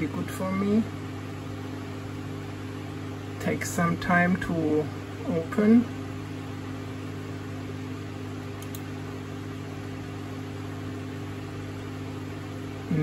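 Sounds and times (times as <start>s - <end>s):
low machine hum: 0.0s - 13.0s
faint clicks: 8.6s - 8.9s.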